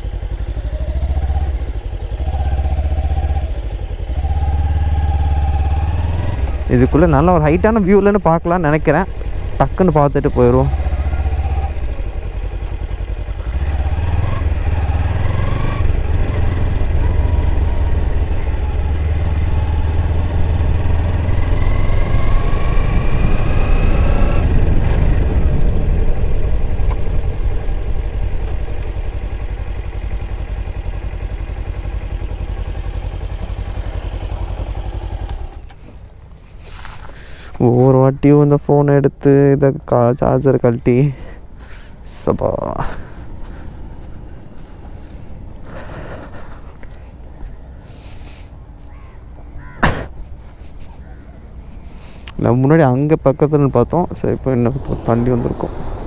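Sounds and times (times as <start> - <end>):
motorcycle engine accelerating: 0.0 - 37.3, 53.2 - 56.0.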